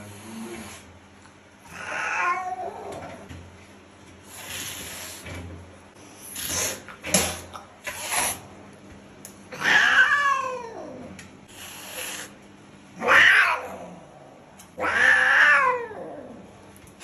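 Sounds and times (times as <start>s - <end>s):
angry cat yowling: 9.6s - 11.0s, 14.8s - 16.4s.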